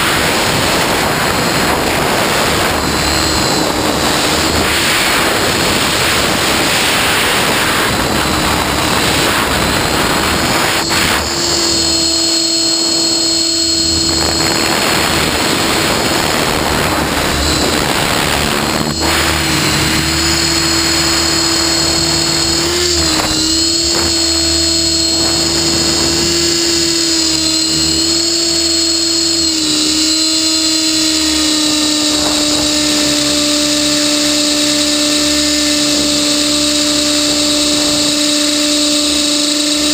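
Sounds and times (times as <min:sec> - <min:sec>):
rc helicopter motor whining: 0:00.0 - 0:39.9
wind on microphone: 0:00.0 - 0:39.9.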